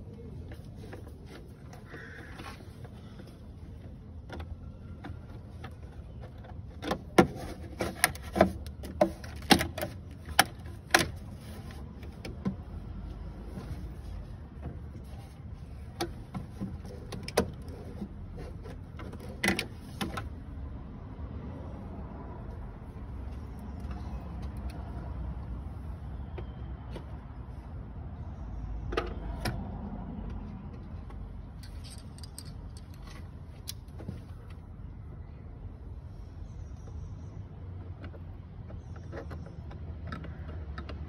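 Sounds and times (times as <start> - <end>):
clicks of plastic car parts: 0.9 - 12.7, 37.7 - 41.0.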